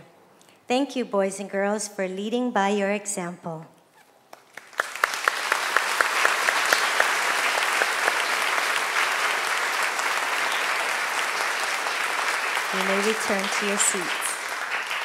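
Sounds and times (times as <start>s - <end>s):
audience applause: 4.5s - 15.0s.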